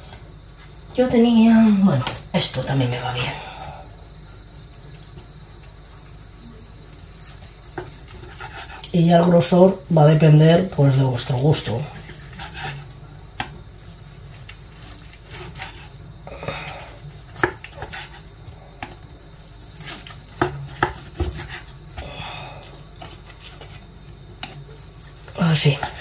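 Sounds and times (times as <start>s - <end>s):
knife slicing meat: 4.3s - 9.0s, 11.9s - 13.0s, 13.8s - 16.0s, 16.9s - 21.8s.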